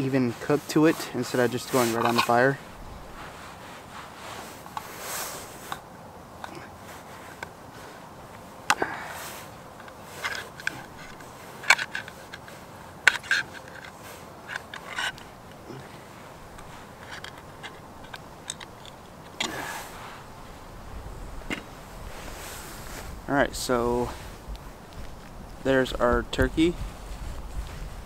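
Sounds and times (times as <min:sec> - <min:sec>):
knife scraping tin can: 0:00.4 - 0:02.5.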